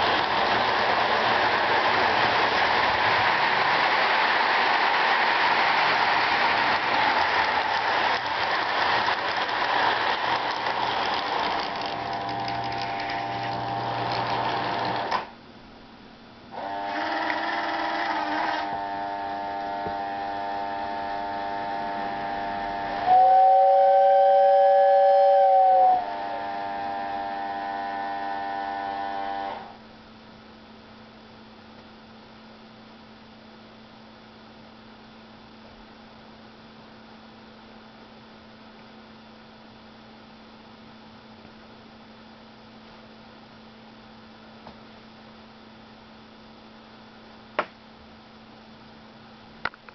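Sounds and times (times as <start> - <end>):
toy train rattling on track: 0.0 - 15.2
low steady hum: 0.0 - 16.7, 18.1 - 49.9
electric whine: 16.5 - 29.8
two-note train whistle: 18.1 - 29.5.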